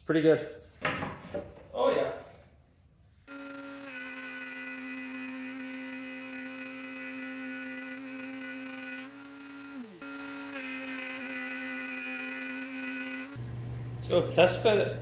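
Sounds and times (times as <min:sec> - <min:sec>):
wood router high whine: 0:03.3 - 0:14.8.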